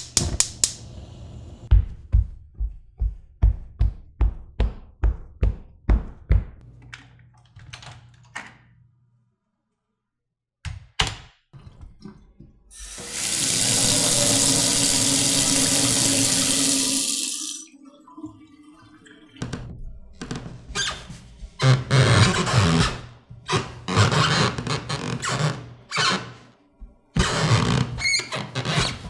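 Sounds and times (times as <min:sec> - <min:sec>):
heavy footsteps on floor: 0:01.7 - 0:06.6
faucet running: 0:12.7 - 0:19.7.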